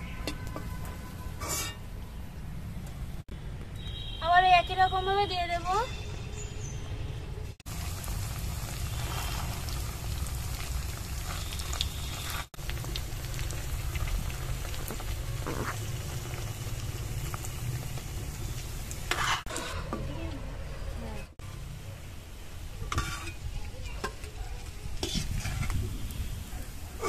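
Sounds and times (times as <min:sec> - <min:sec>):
oil sizzling and bubbling: 0:07.6 - 0:27.0.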